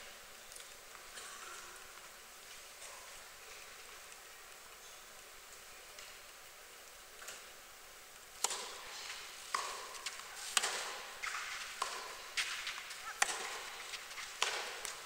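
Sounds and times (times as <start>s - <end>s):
tennis ball hit by rackets: 8.4s - 15.0s.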